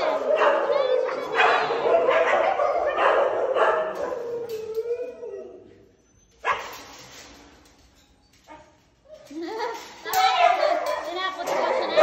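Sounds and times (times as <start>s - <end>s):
dogs howling and whining: 0.0s - 6.0s.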